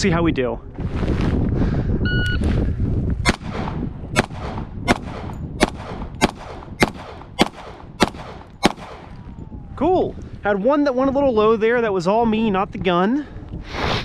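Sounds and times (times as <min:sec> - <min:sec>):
shot timer beep: 0:02.1 - 0:02.4
pistol shots: 0:03.2 - 0:09.2.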